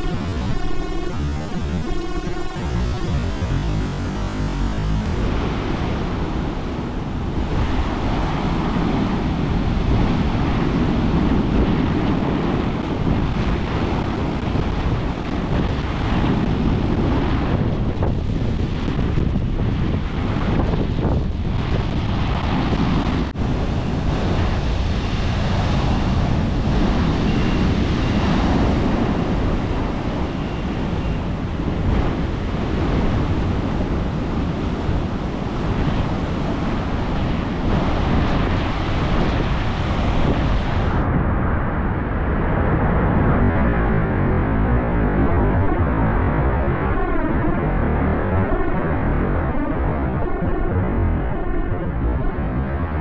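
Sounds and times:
ocean waves breaking: 0.0s - 41.0s
wind rumbling on microphone: 0.0s - 53.0s.

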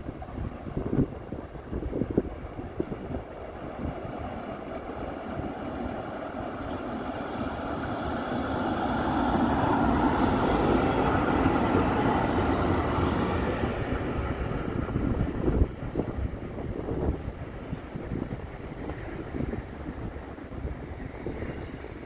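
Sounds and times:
wind on microphone: 0.0s - 21.8s
tram wheels rumbling on rail: 0.0s - 22.0s.

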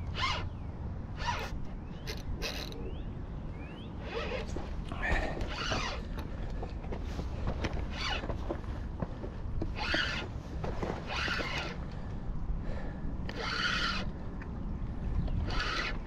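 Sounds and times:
fishing reel rasping: 0.1s - 0.5s, 1.2s - 2.8s, 9.8s - 10.2s, 13.3s - 14.1s, 15.4s - 16.0s.

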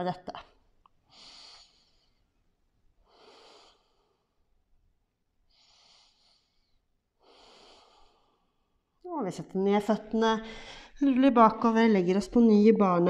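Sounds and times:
person breathing through nose: 1.1s - 2.2s, 3.0s - 4.3s, 5.5s - 8.6s.

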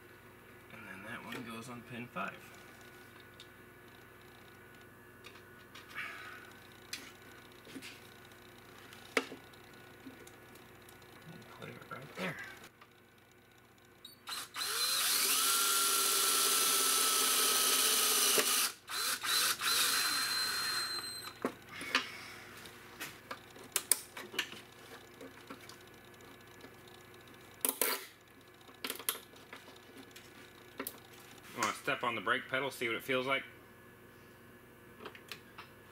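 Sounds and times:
cordless drill driving screw: 14.3s - 21.4s.

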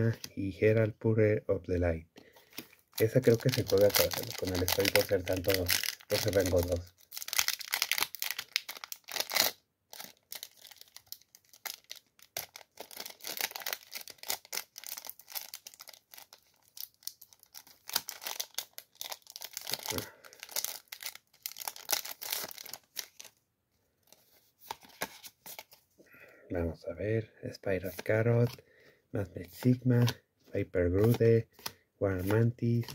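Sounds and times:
foil wrapper crinkling and tearing: 2.4s - 23.4s.

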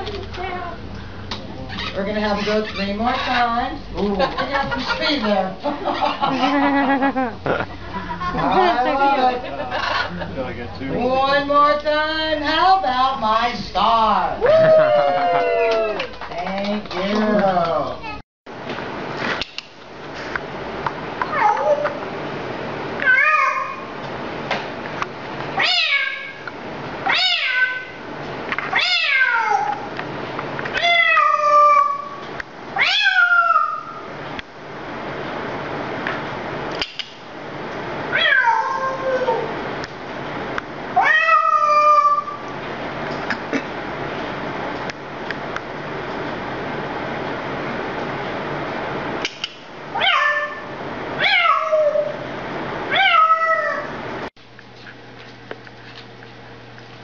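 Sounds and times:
parrot meowing: 25.6s - 26.4s, 27.0s - 28.0s, 28.7s - 29.9s, 30.7s - 32.2s, 32.8s - 34.0s, 38.1s - 39.5s, 41.0s - 42.4s.

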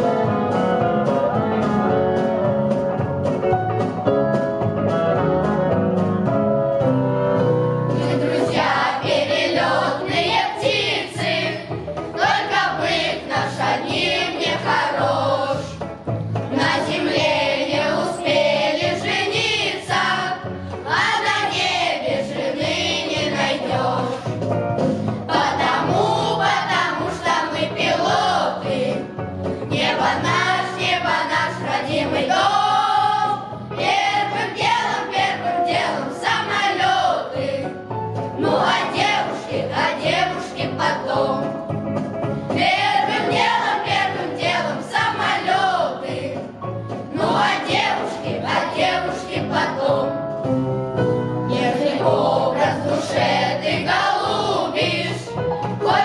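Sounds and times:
boys' choir singing in unison: 7.9s - 15.8s, 16.5s - 24.4s, 25.1s - 29.1s, 29.7s - 37.7s, 38.4s - 41.5s, 42.6s - 50.2s, 51.5s - 56.0s
singers breathing: 24.8s - 25.2s.

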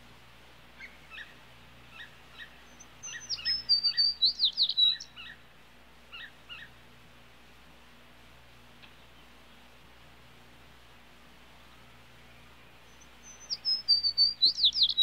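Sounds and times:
sparrow chirping: 0.8s - 5.4s, 6.1s - 6.8s, 12.2s - 15.0s.

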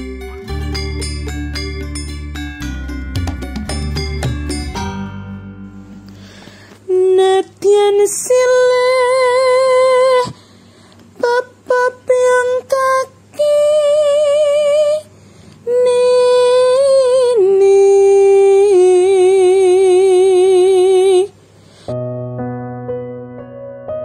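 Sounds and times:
piano notes: 0.0s - 6.6s, 21.9s - 24.0s
woman singing with vibrato: 6.9s - 10.4s, 11.2s - 21.4s.

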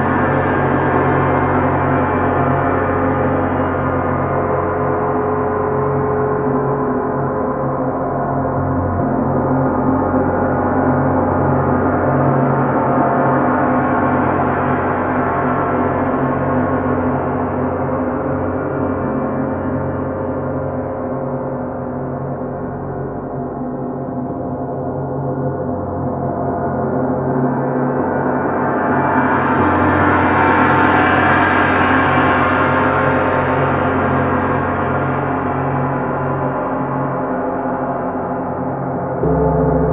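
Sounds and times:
gongs ringing: 39.2s - 39.9s.

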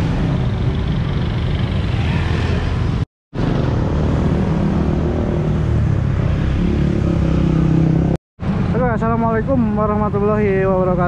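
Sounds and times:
motor scooters driving past: 0.0s - 8.2s.

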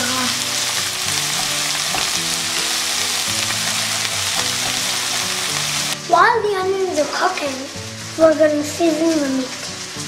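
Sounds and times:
onions sizzling in oil: 0.0s - 10.0s
quiet background music: 0.0s - 10.0s.

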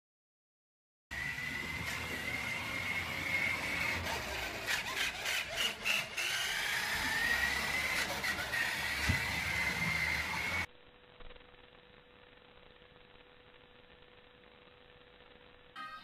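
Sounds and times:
toy truck motor whining: 1.2s - 10.7s.

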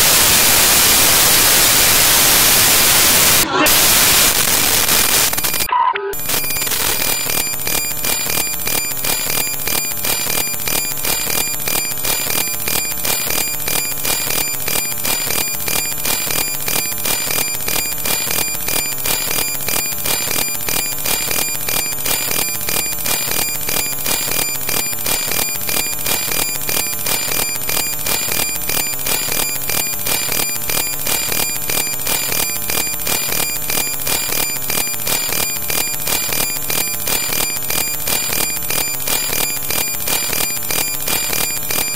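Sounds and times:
pulsing electronic static: 0.0s - 41.9s.

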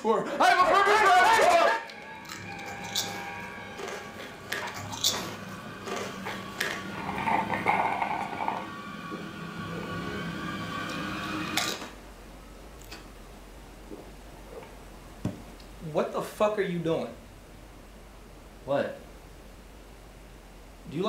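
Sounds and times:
faint steady tonal hum: 0.7s - 16.0s.

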